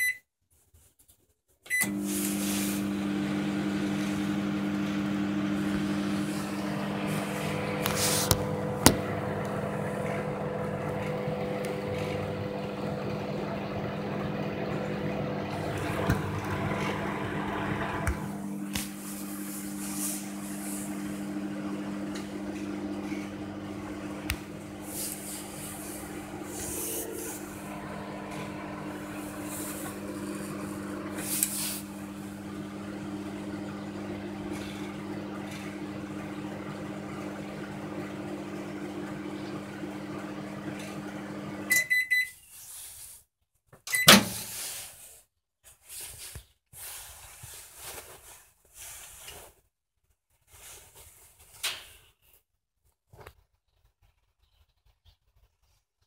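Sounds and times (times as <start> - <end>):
short beeps: 0.0 - 0.2
microwave oven humming: 1.7 - 42.3, 43.9 - 44.5.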